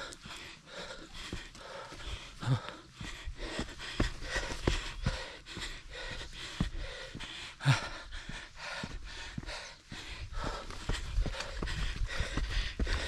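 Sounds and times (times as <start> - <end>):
person panting heavily: 0.0 - 13.0
footsteps thudding: 3.0 - 13.0.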